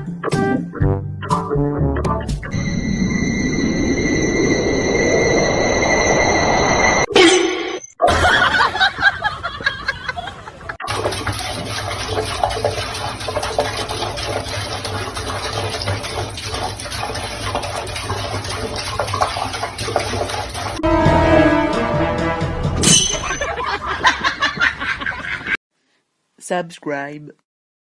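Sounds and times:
tap water running into sink: 10.8s - 20.8s.

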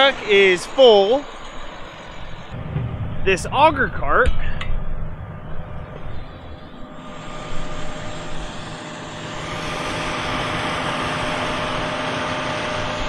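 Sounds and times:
hiss: 6.8s - 13.0s.

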